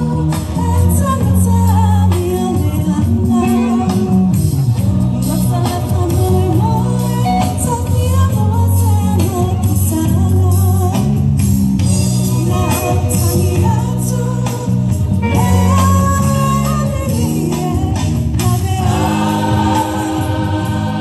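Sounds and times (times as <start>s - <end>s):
instrumental backing: 0.0s - 21.0s
choir singing a carol: 18.8s - 21.0s.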